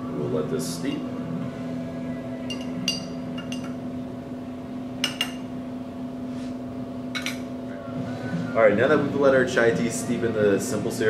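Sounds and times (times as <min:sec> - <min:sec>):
steady low hum: 0:00.0 - 0:11.0
spoon clinking against glass jar: 0:02.5 - 0:03.8.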